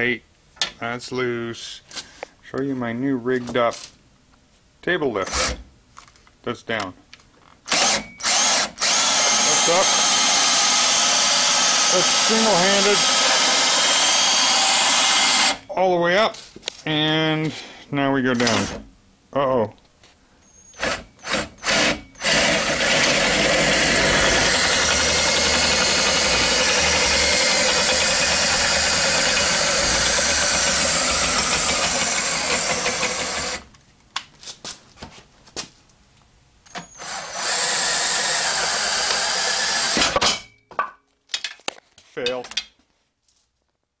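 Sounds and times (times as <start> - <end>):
electric motor running: 7.8 - 15.6, 20.9 - 33.7.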